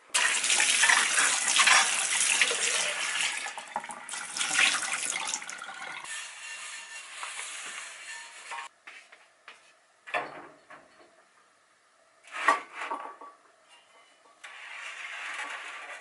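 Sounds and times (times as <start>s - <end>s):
tap water running: 0.1s - 6.1s.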